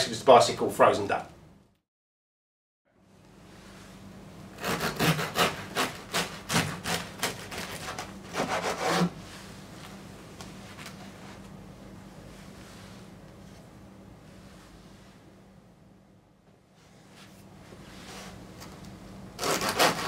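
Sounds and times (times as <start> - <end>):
knife sawing through bread crust: 4.6 - 9.2, 19.4 - 20.0.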